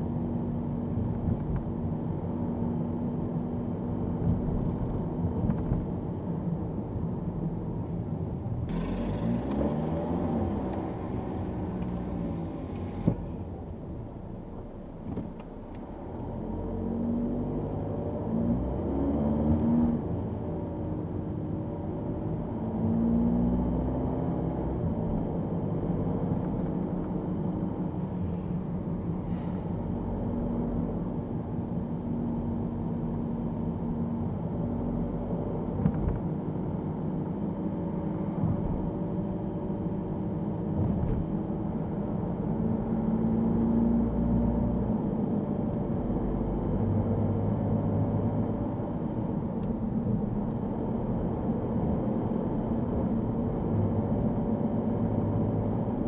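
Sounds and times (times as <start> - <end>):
car engine and tyre rumble: 0.0 - 56.0.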